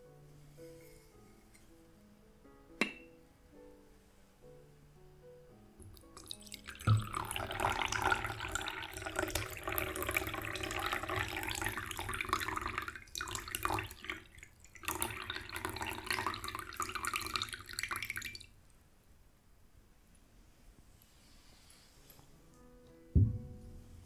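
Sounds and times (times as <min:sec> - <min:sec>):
tea pouring into a cup: 0:05.9 - 0:18.5.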